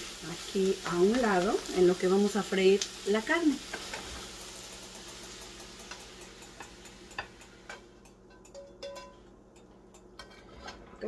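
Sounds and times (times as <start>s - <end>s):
food sizzling in skillet: 0.0s - 8.2s
ringing clink: 8.5s - 9.2s
spatula scraping pan: 10.2s - 11.0s.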